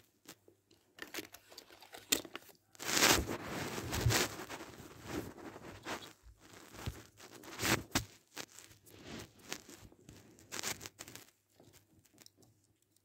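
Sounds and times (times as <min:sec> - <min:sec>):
plastic and cardboard packaging tearing: 0:01.0 - 0:09.8.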